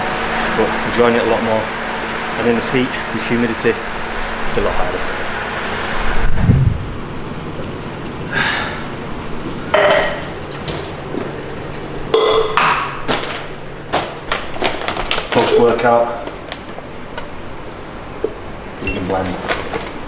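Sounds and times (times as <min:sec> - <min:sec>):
short metallic ring: 0:18.8 - 0:19.4.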